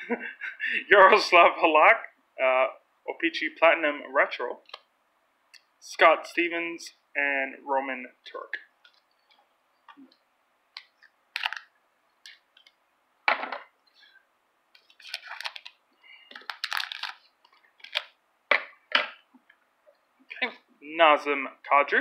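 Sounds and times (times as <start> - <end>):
plastic wrapper crackling: 11.3 - 12.7, 14.8 - 18.2.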